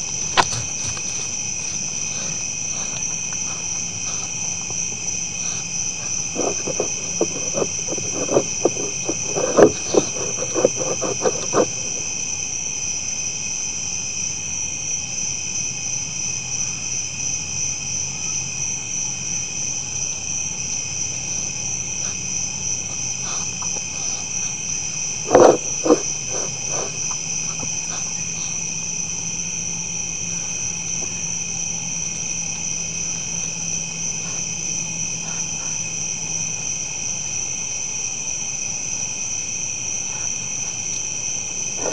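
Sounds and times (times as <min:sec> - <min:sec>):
deer crunching feed: 0:00.0 - 0:12.3, 0:21.9 - 0:28.7
insects buzzing at night: 0:00.0 - 0:41.9.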